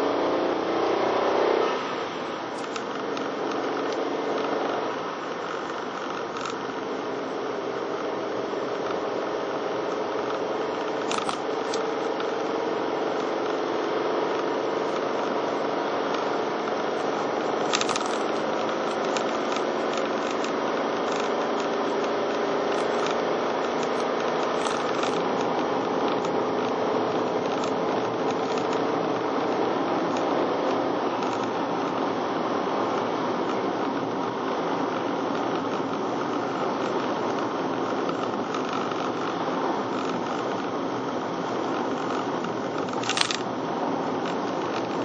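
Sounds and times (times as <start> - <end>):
car road noise and engine hum: 0.0 - 45.0
sharp clicks: 10.8 - 12.3, 17.0 - 25.6, 41.7 - 43.5.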